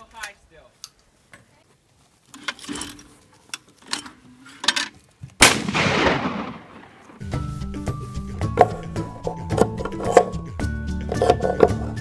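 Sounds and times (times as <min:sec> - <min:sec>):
shotgun shots: 0:05.4 - 0:07.2.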